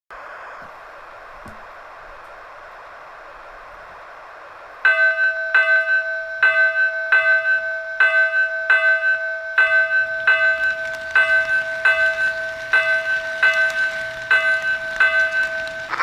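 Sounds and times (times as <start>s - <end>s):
soft steady hiss: 0.1s - 16.0s
locomotive bell ringing: 4.8s - 16.0s.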